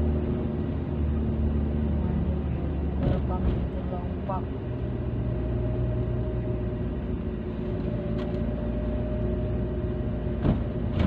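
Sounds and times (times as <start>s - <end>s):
car engine and road rumble: 0.0s - 11.0s.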